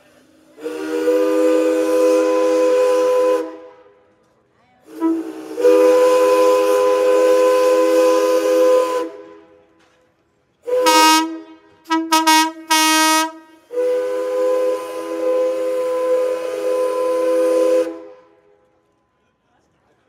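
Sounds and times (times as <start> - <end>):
steam whistle blasts: 0.6 - 3.9, 4.9 - 9.6, 10.6 - 18.4.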